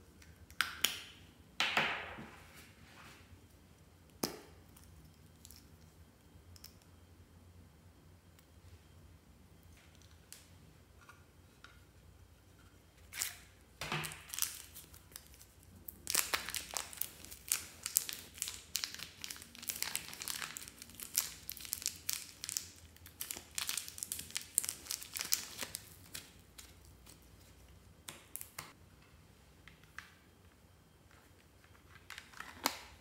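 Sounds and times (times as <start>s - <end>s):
plastic film crinkling: 14.0s - 27.2s.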